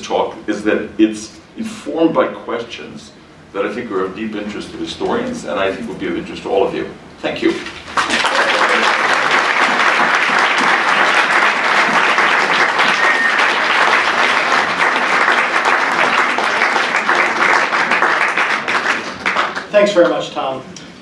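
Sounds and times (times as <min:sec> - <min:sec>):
audience applause: 0:07.8 - 0:19.8.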